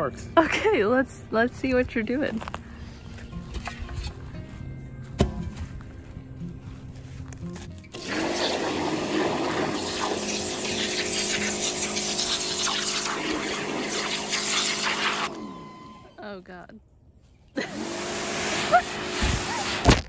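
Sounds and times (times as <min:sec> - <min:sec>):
pump humming: 0:07.9 - 0:16.4, 0:17.6 - 0:19.9
pressure washer jet hissing: 0:08.0 - 0:16.1, 0:17.6 - 0:19.8.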